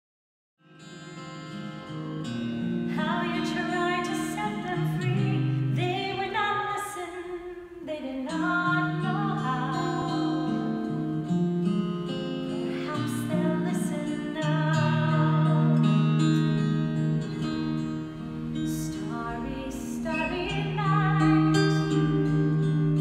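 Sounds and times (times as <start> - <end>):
acoustic guitar: 0.6 - 23.0
woman singing: 2.9 - 11.0, 12.5 - 16.6, 18.6 - 23.0.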